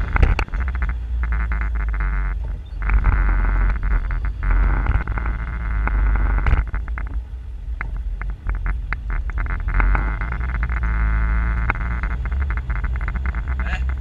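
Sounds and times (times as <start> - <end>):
vehicle knocks and clatters: 0.0 - 1.3, 2.3 - 10.8
engine droning: 0.0 - 14.0.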